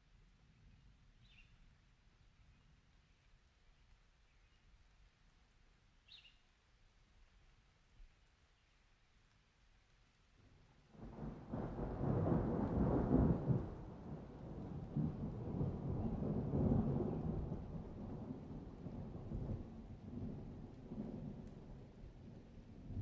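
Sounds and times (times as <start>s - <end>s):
thunder rumbling: 11.0s - 22.2s.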